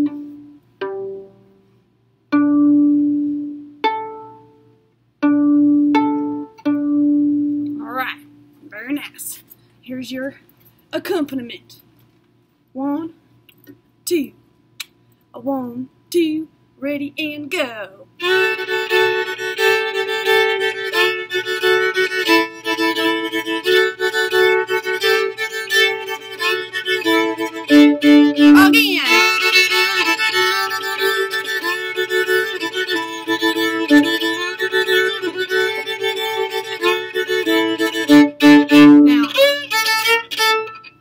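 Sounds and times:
violin bowing open strings: 0.0 - 1.6, 5.2 - 8.4, 18.2 - 41.0.

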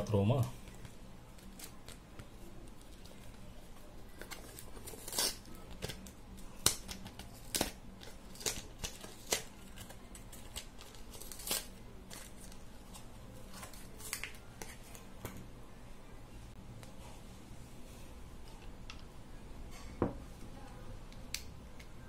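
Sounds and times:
packaging tearing and crinkling: 4.1 - 12.7.

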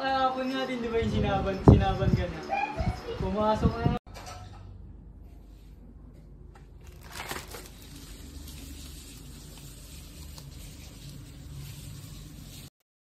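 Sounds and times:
plastic and cardboard rustling: 6.8 - 12.7.

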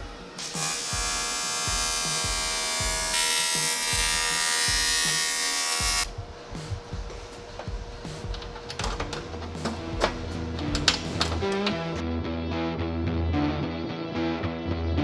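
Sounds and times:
welding arc buzzing: 0.0 - 6.1.

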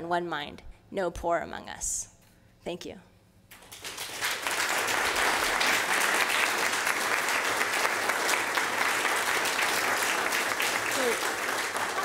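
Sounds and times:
audience applauding: 3.6 - 12.0.

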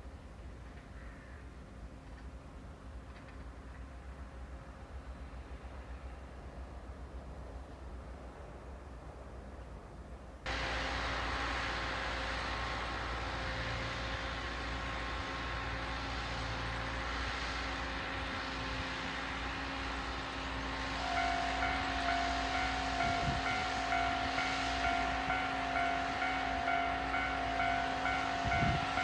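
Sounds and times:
train rushing noise with low hum: 0.0 - 29.0
faint pulsing ring: 21.0 - 29.0.

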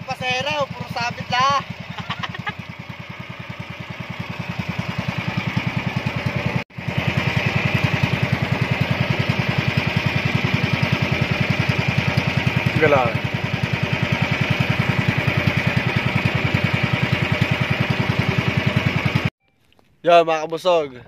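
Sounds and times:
small boat engine running: 0.0 - 19.3.

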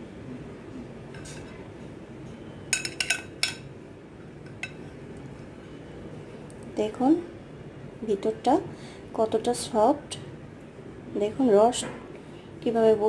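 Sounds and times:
metal spoon clinking china bowl: 2.7 - 3.7.

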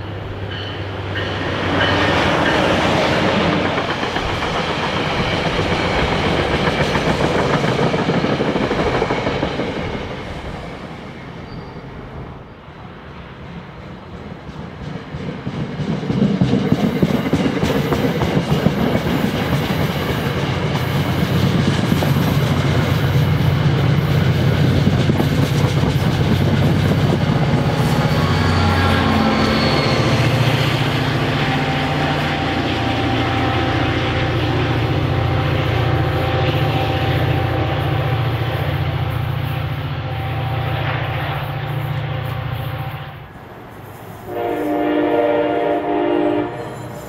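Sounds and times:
diesel locomotive engine drone: 0.0 - 47.0
train wheels clattering over rails: 0.4 - 10.4, 13.9 - 31.3.

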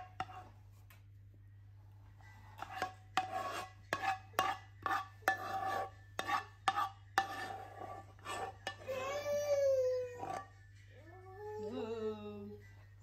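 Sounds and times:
spoon scraping a frying pan: 0.0 - 0.6, 2.4 - 9.0.

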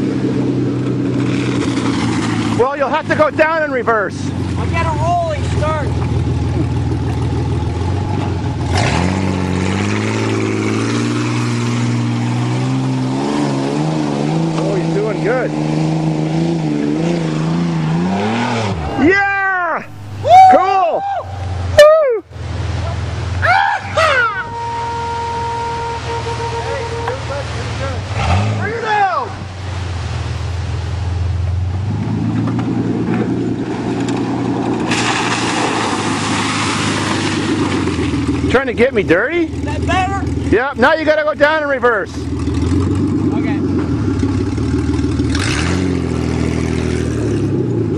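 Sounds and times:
pickup engine revving: 0.0 - 20.4, 21.4 - 47.9.

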